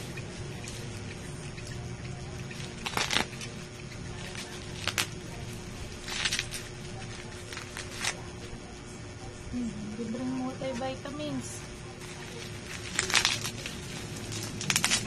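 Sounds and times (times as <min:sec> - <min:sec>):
faint steady hum: 0:00.0 - 0:15.0
plastic packaging crinkling: 0:02.5 - 0:08.3, 0:12.0 - 0:15.0.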